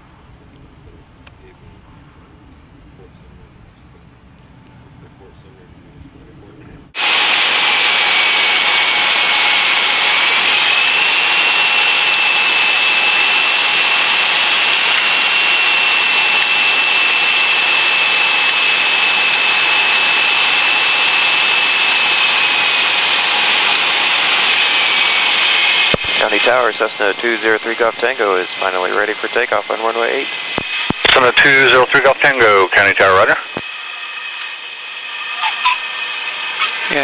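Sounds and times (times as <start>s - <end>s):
propeller plane engine droning: 0.0s - 37.0s
thin steady whine: 0.0s - 37.0s.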